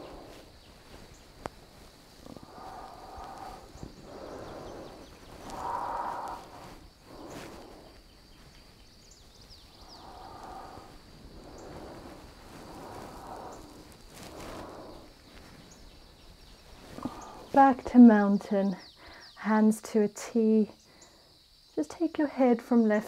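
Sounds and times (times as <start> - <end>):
woman breathing slowly: 0.0 - 9.0, 9.7 - 16.0, 16.8 - 17.6, 18.8 - 19.4, 20.8 - 21.6.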